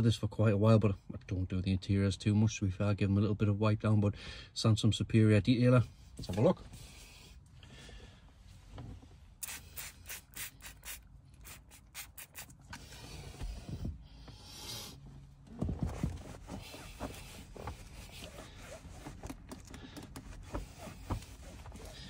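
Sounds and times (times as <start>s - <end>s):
trigger spray bottle spritzing: 9.4s - 12.6s
cloth wiping plastic panel: 15.6s - 22.0s.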